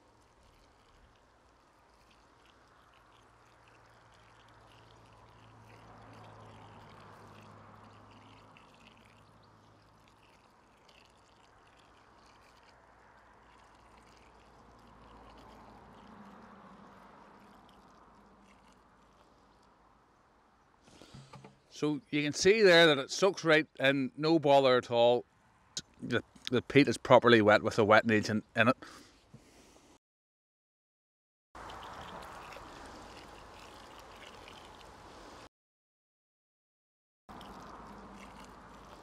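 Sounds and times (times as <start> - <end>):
water pouring from watering can: 0.0 - 19.8, 31.6 - 35.5, 37.3 - 39.0.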